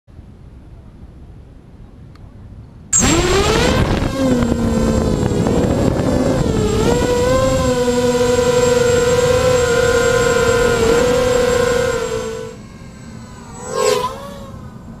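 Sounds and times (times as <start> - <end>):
quadcopter motors whining: 3.0 - 15.0.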